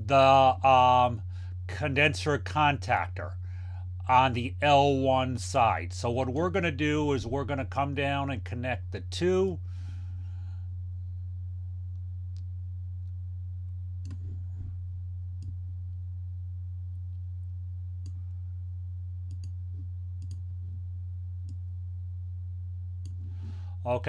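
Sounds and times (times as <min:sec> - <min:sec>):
low hum: 0:00.0 - 0:24.0
computer mouse clicks: 0:14.0 - 0:14.4, 0:19.3 - 0:19.6, 0:20.2 - 0:20.4, 0:23.0 - 0:23.3.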